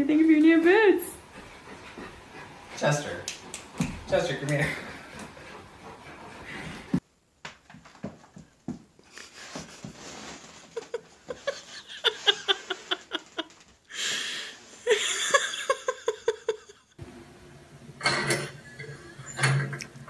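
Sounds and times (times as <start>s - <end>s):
person laughing: 10.6s - 14.1s, 14.8s - 16.9s.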